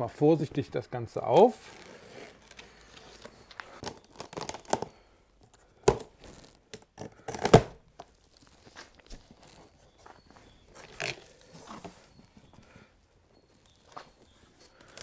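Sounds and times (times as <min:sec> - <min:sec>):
packing tape tearing: 0:01.6 - 0:04.9, 0:05.9 - 0:09.6, 0:10.9 - 0:11.4.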